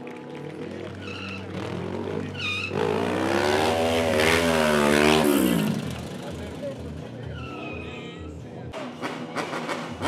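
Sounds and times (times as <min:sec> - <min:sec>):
motorcycle engine idling and revving: 0:00.0 - 0:10.0
short high squeals: 0:07.3 - 0:08.4.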